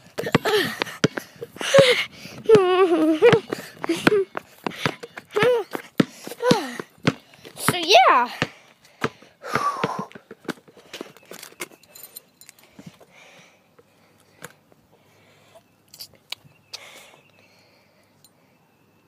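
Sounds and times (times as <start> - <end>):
child vocal sound: 1.6 - 4.3, 5.3 - 5.8, 6.4 - 6.8.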